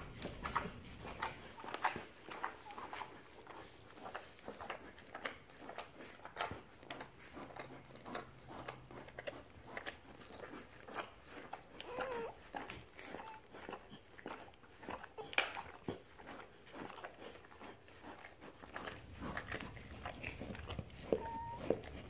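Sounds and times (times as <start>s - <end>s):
puppies suckling wet clicks: 0.0s - 22.0s
puppy squeaking: 21.0s - 22.0s.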